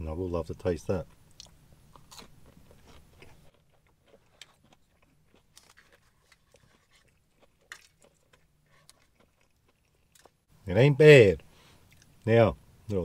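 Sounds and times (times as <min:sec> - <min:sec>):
faint chewing: 0:01.0 - 0:10.5, 0:11.4 - 0:12.2.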